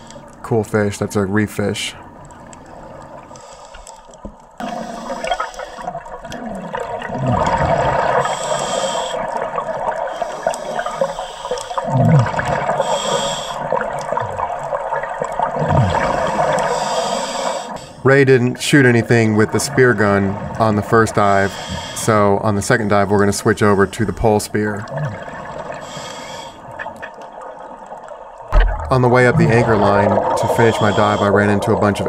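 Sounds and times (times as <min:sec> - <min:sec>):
regulator inhalation hiss: 0:04.6 - 0:05.9, 0:08.2 - 0:09.4, 0:10.1 - 0:11.9, 0:12.8 - 0:13.7, 0:16.2 - 0:18.0, 0:25.8 - 0:26.6, 0:30.6 - 0:31.4
bubbling exhalations: 0:04.6 - 0:08.3, 0:11.8 - 0:12.9, 0:15.4 - 0:16.8.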